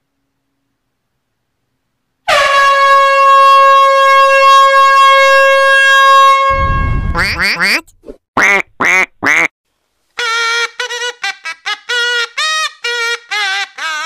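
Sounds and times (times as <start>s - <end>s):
loud steady horn note: 2.3s - 7.3s.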